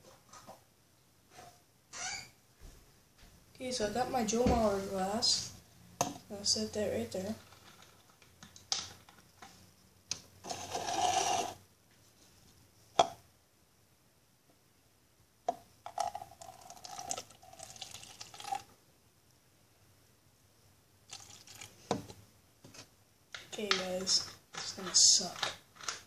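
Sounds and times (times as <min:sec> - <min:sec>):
liquid pouring into plastic tub: 0:15.9 - 0:18.7, 0:21.1 - 0:22.0.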